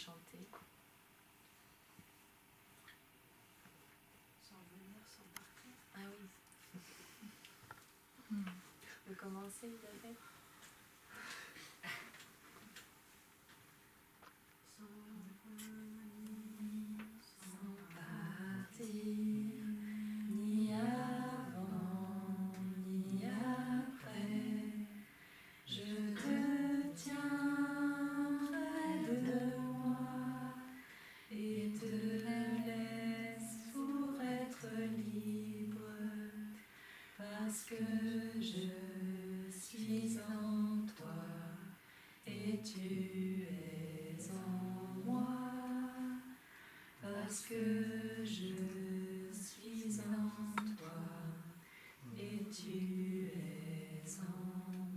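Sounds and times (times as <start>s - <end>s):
person singing unaccompanied: 14.7s - 25.0s, 25.7s - 36.6s, 37.2s - 46.4s, 47.0s - 54.9s.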